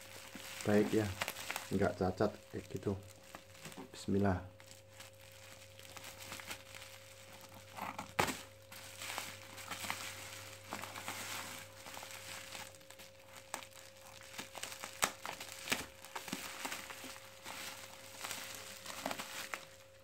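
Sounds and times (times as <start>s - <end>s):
plastic crinkling: 0.0s - 20.0s.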